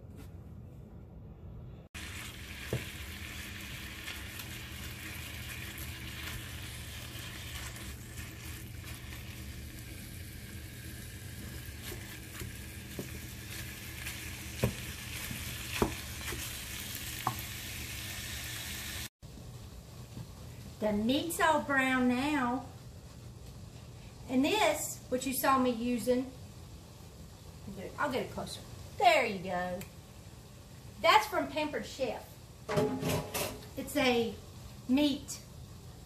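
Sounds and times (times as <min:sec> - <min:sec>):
meat sizzling in a frying pan: 0:02.0 - 0:19.1.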